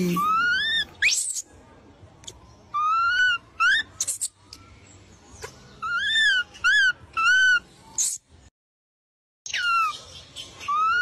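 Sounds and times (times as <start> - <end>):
baby monkey squeaky coos: 0.0 - 1.5, 2.7 - 4.4, 5.8 - 8.3, 9.5 - 11.0.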